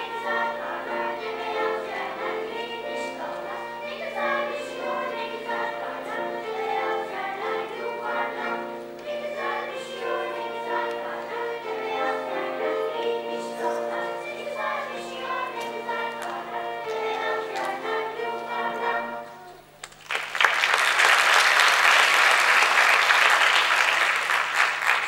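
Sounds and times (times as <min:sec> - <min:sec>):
children's choir singing: 0:00.0 - 0:19.8.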